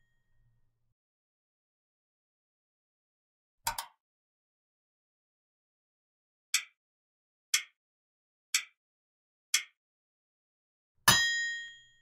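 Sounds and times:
timer ticks: 6.5s - 6.8s, 7.5s - 7.8s, 8.5s - 8.8s, 9.5s - 9.8s
bell ding: 11.1s - 11.9s.

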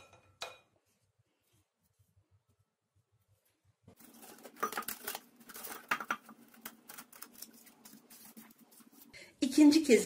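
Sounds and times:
cling film crinkling: 4.0s - 9.1s.

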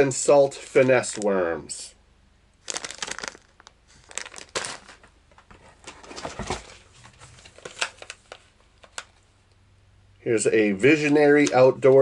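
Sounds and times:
plastic packaging crinkling: 0.6s - 1.4s, 2.6s - 5.1s, 7.4s - 9.2s.

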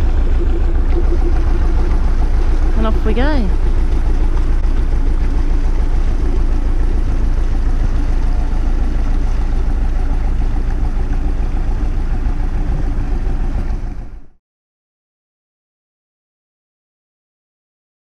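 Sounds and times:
boat engine low rumble: 0.0s - 14.4s.

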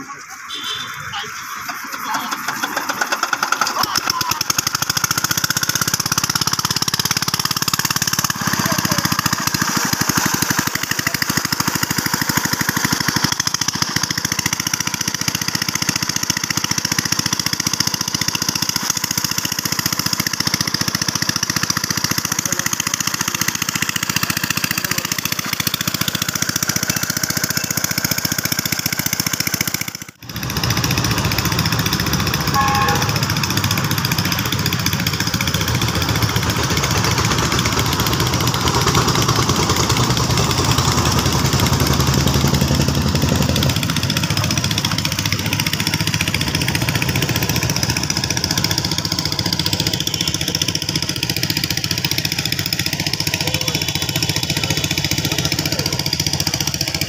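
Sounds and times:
small pump engine running: 0.0s - 57.0s
water gushing from pipe: 1.5s - 29.3s.

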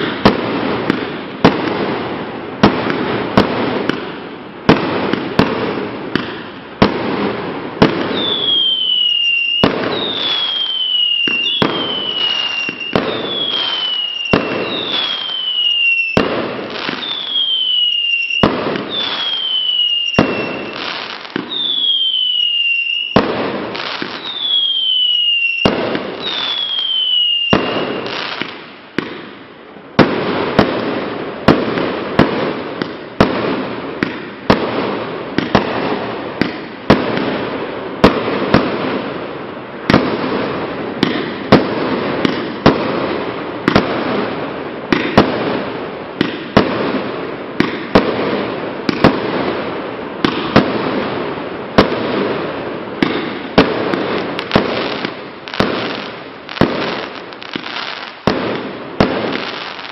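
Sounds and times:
fireworks bangs: 0.0s - 59.9s
falling firework whistle: 7.9s - 28.5s.

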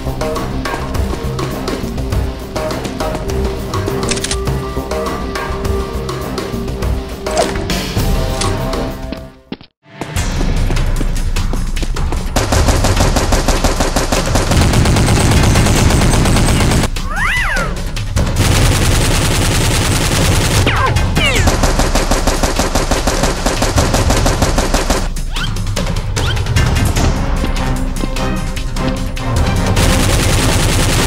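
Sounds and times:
background music: 0.0s - 31.0s
automatic gunfire: 12.4s - 16.9s, 18.4s - 25.1s, 29.8s - 31.0s.

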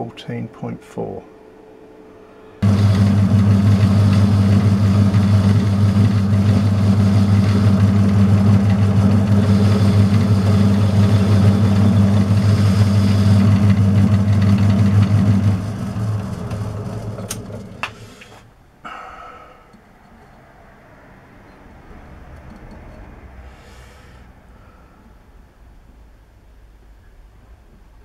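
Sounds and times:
metal lathe motor humming: 2.6s - 18.4s.

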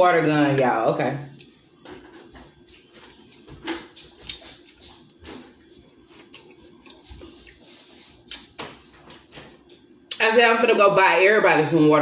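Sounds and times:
faint steady hum: 0.0s - 12.0s
person chewing: 1.3s - 10.2s
lip smacks: 8.2s - 8.6s.

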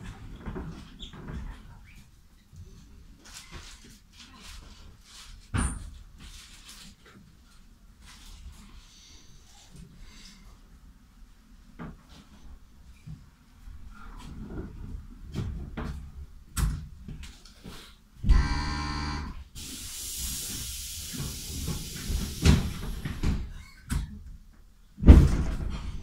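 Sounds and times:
buzzing warning tone: 18.3s - 19.4s
compressed air hiss: 19.6s - 23.4s
loud thud: 25.0s - 26.0s.

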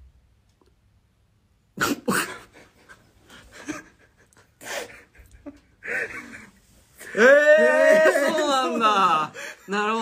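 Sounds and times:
men stifling laughter: 1.9s - 10.0s.

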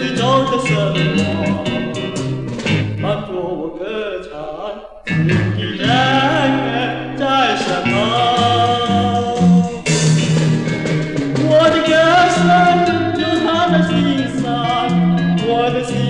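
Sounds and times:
band of guitars bass and drums: 0.0s - 3.1s, 7.8s - 16.0s
man singing pop song: 5.6s - 9.5s.

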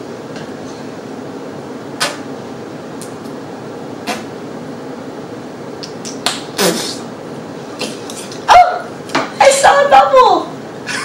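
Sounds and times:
gum chewing clicks and smacks: 5.8s - 6.4s.

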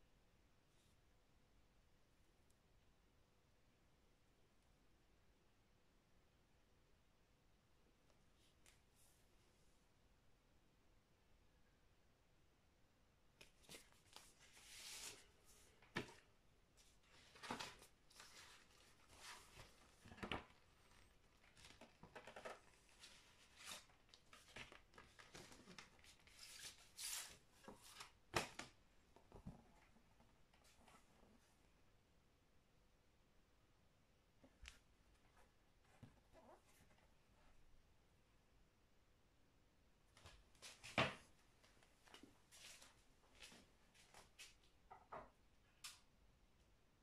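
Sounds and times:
faint crinkles of plastic wrap: 13.4s - 28.2s
paper record sleeve rustling: 13.4s - 28.8s.

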